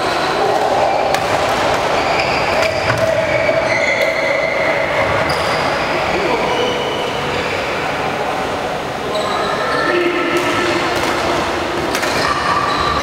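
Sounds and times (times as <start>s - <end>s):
shoe squeaks: 2.0s - 5.6s, 12.1s - 13.0s
racket striking shuttlecock: 10.4s - 12.4s.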